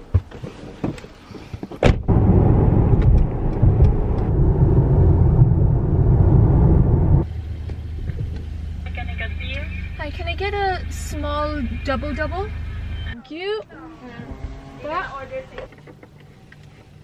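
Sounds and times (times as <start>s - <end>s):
car engine and tyres rumbling: 0.0s - 17.0s
car door slamming: 1.8s - 4.2s.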